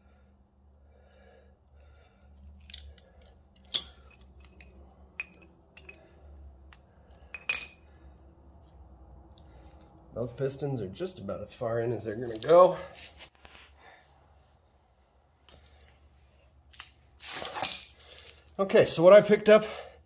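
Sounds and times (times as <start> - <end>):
pliers clinking on metal: 2.6 - 6.1, 6.7 - 7.9.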